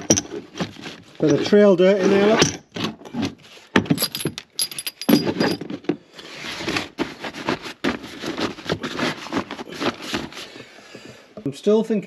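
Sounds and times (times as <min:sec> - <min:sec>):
metal tools clinking: 0:03.9 - 0:05.7.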